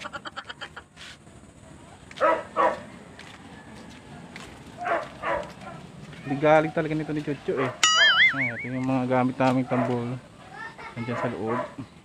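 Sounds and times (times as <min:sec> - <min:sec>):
dog barking: 0:02.2 - 0:02.8, 0:04.8 - 0:05.8, 0:06.7 - 0:08.2, 0:09.6 - 0:10.2, 0:11.1 - 0:11.8.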